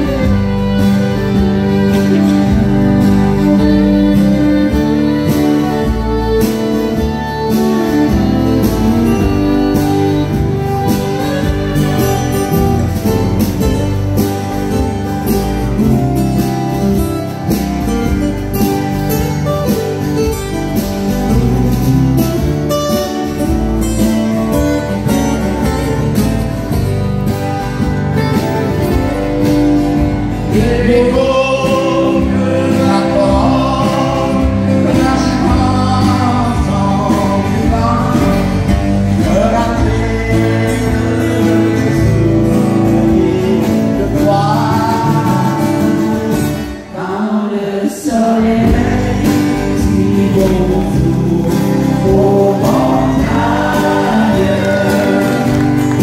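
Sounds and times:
fiddle playing: 0:00.0 - 0:31.0
acoustic guitars: 0:00.0 - 0:56.0
voices singing into microphones: 0:30.5 - 0:56.0.

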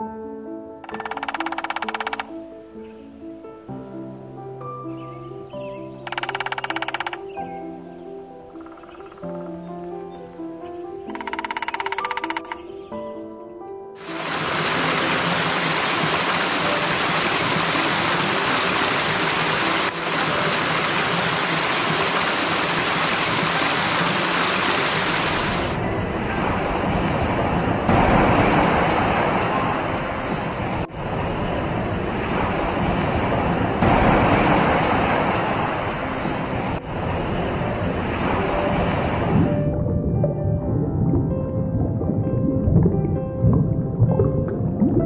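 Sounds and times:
rushing water: 0:00.8 - 0:02.4, 0:06.0 - 0:07.3, 0:14.0 - 0:45.0.

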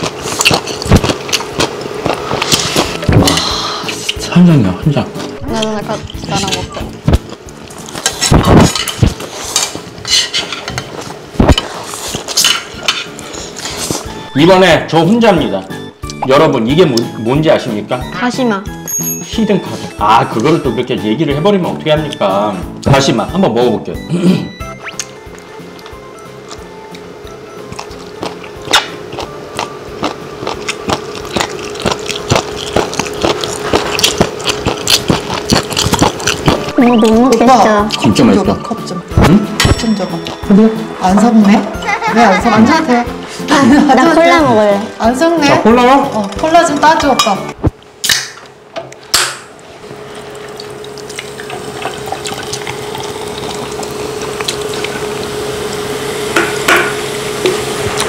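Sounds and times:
crunchy chewing: 0:00.0 - 0:03.0, 0:27.6 - 0:37.2
can cracked open: 0:48.0 - 0:48.4.

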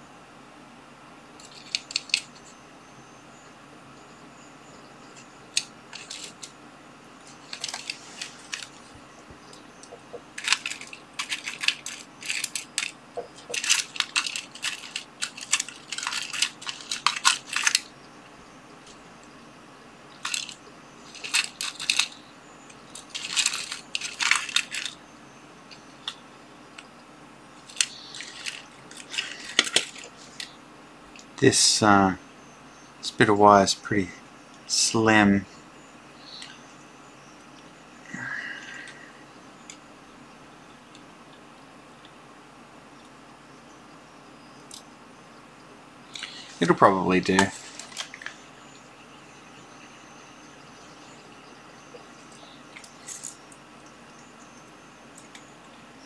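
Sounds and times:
wire offcuts rattling in plastic box: 0:07.4 - 0:08.8, 0:09.8 - 0:17.9, 0:20.2 - 0:20.6, 0:21.2 - 0:22.2, 0:22.9 - 0:25.0, 0:27.7 - 0:30.5.

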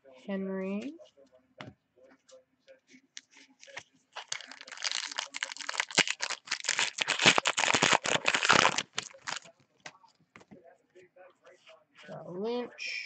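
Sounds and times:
plastic bag crinkling: 0:03.2 - 0:09.5.

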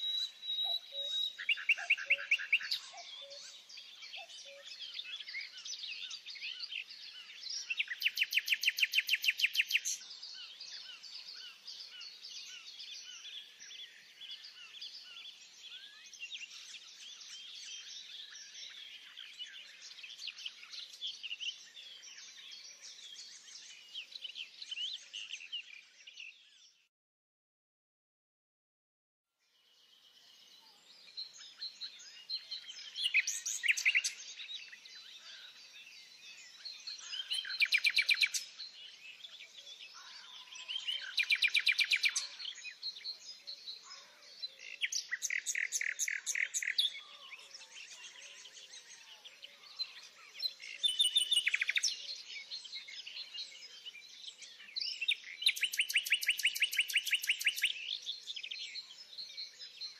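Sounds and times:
songbird trilling: 0:00.0 - 0:03.4, 0:55.0 - 0:57.9
birds chirping softly: 0:00.0 - 0:26.9, 0:29.3 - 0:59.9.

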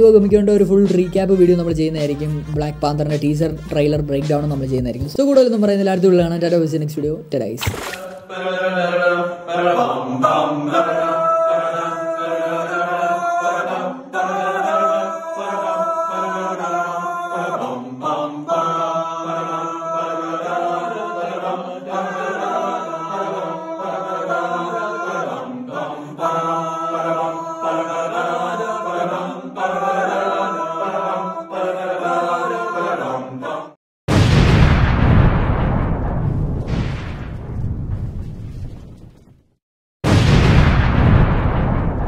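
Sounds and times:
music with choir-like chanting: 0:08.2 - 0:33.8
loud booming hit: 0:34.1 - 0:39.0, 0:40.0 - 0:42.0.

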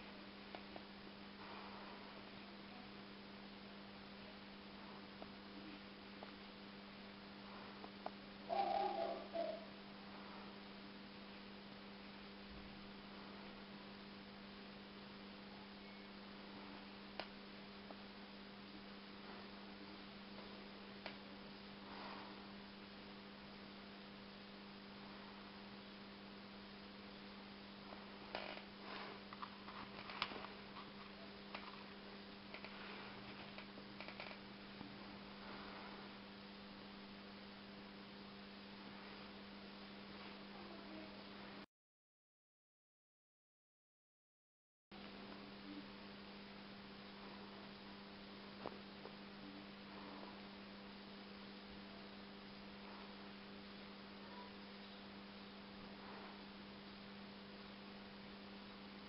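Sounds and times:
background hiss: 0:00.0 - 0:41.6
faint electrical hum: 0:00.0 - 0:41.7, 0:44.9 - 0:59.0
soft crackles and ticks: 0:00.5 - 0:01.6, 0:07.8 - 0:08.2, 0:17.1 - 0:18.0, 0:20.3 - 0:21.3, 0:27.9 - 0:34.9.

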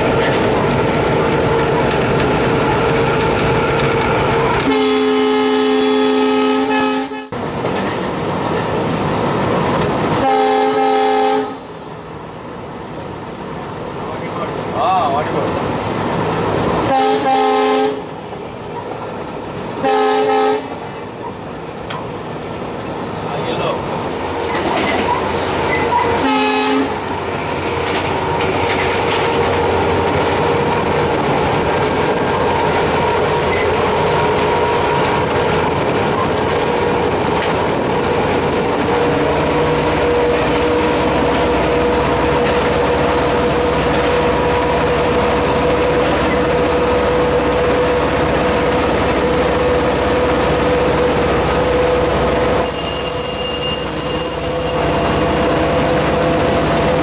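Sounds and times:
locomotive engine and wheels rumbling: 0:00.0 - 0:57.0
train horn blast: 0:04.6 - 0:07.4, 0:10.2 - 0:11.7, 0:16.8 - 0:18.1, 0:19.8 - 0:20.8, 0:26.2 - 0:27.0.

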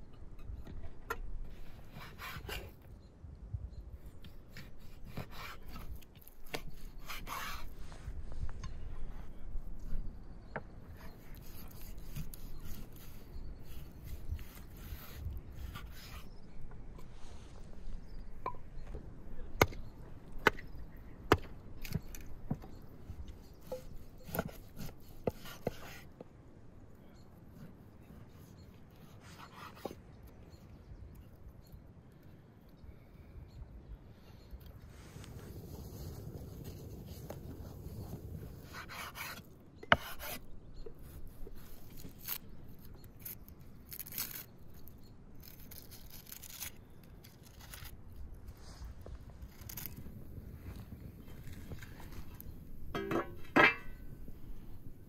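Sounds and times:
knife peeling dry onion skin: 0:04.3 - 0:07.8, 0:11.0 - 0:16.4, 0:38.6 - 0:52.2
hatchet chopping firewood: 0:19.6 - 0:22.7, 0:23.6 - 0:26.0.

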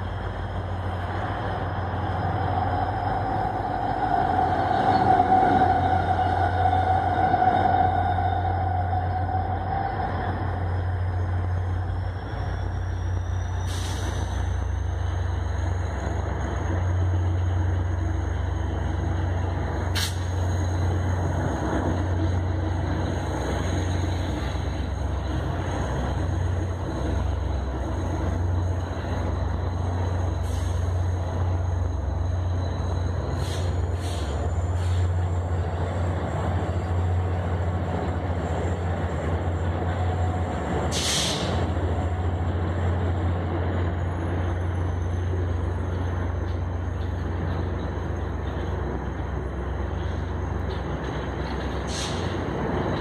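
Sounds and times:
diesel locomotives passing: 0:00.0 - 0:53.0
train wheels rumbling on rails: 0:00.0 - 0:53.0.

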